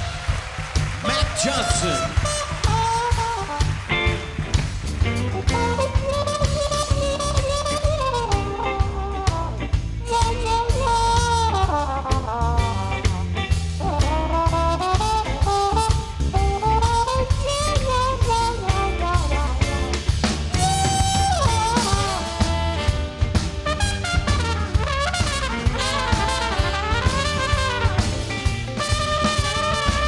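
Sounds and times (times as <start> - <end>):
bass: 0.0 - 30.0
drum kit: 0.0 - 30.0
muted trumpet solo: 5.4 - 13.2, 13.8 - 19.8, 20.5 - 30.0.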